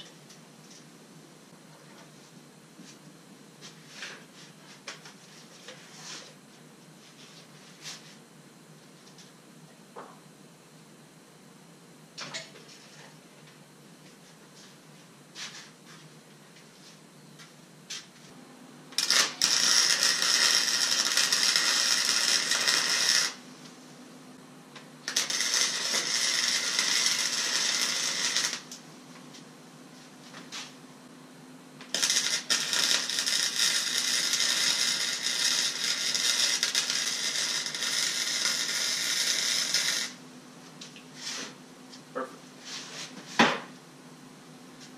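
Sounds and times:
low welder hum: 0.0s - 42.8s
arc welding crackling: 18.9s - 24.0s, 24.7s - 29.5s, 31.8s - 41.0s.

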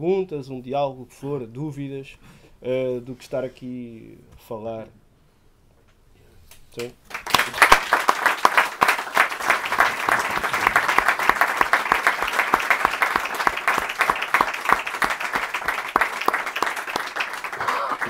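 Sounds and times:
audience applauding: 6.8s - 18.0s.

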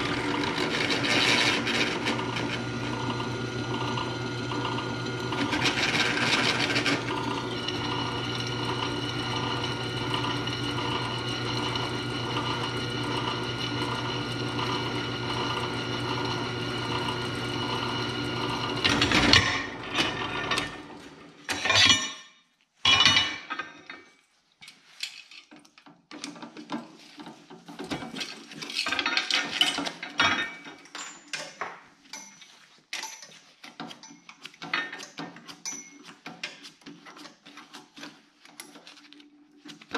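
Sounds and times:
drill press drilling steel: 0.0s - 21.0s
metal clinks and scrapes: 22.9s - 25.7s, 28.0s - 39.0s.

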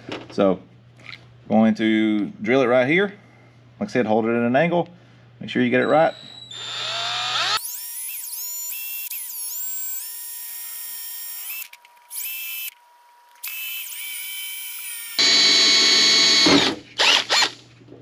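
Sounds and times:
drill drilling into plastic: 6.1s - 17.6s.

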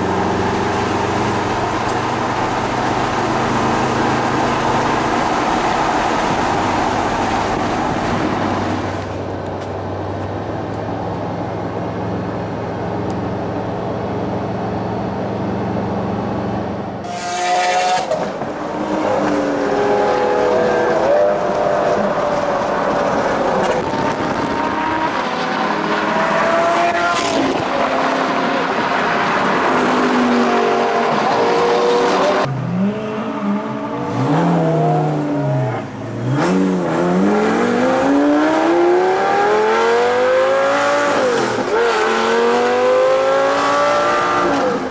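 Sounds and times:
car engines revving: 0.0s - 44.9s
car engine accelerating hard: 13.9s - 44.9s.

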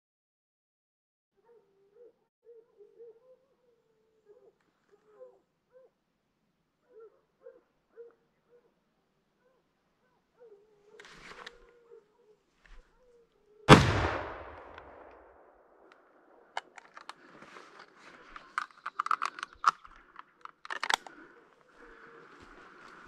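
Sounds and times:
gunshot echoing: 13.7s - 15.8s
clicks and rustles: 16.6s - 21.4s.

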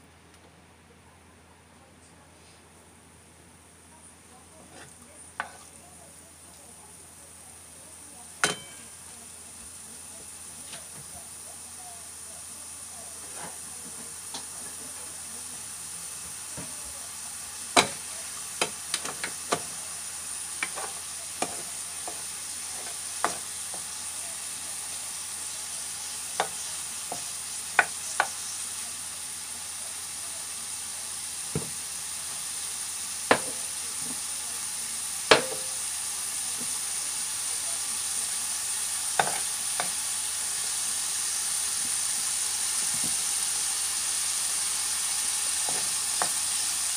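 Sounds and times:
meat sizzling in a frying pan: 4.6s - 46.9s
spoon tapping and scraping pan: 4.7s - 5.7s, 8.4s - 8.9s, 17.8s - 18.0s, 20.6s - 23.9s, 26.4s - 28.4s, 33.3s - 33.6s, 35.3s - 35.8s, 39.2s - 40.0s.

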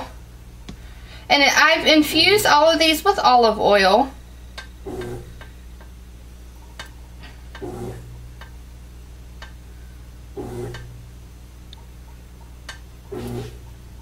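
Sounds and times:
washing machine churning: 4.6s - 5.5s, 6.6s - 8.5s, 10.3s - 11.2s, 11.9s - 14.0s.

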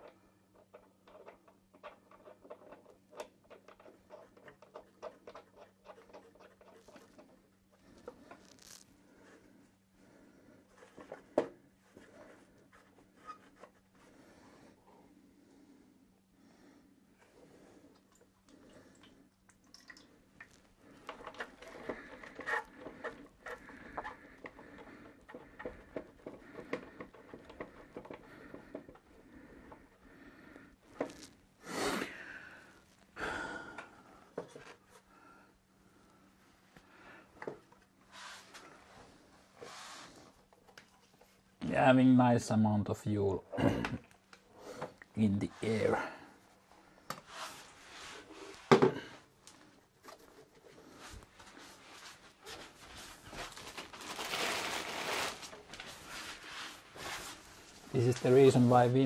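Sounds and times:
hands clicking and scraping fitting: 0.0s - 7.4s, 21.0s - 29.1s.

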